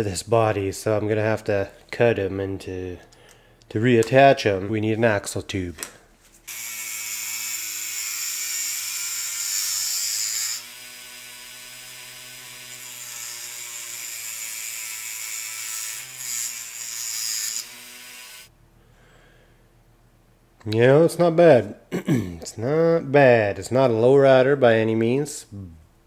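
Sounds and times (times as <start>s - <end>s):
cut-off wheel grinding metal tube: 6.5s - 18.5s.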